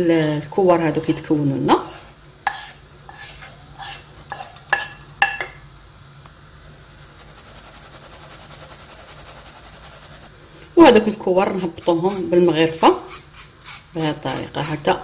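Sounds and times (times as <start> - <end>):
flour sifting through sieve: 6.6 - 10.3, 11.5 - 15.0.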